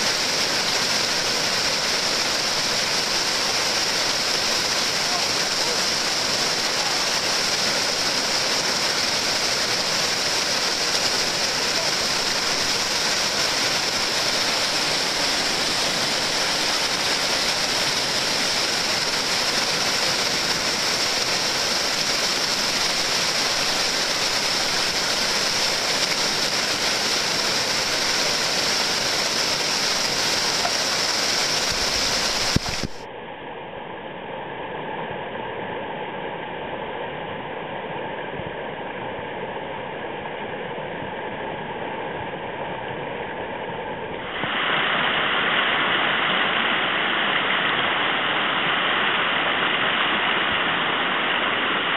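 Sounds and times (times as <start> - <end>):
river rapid rushing: 0.0 - 33.1, 44.2 - 51.9.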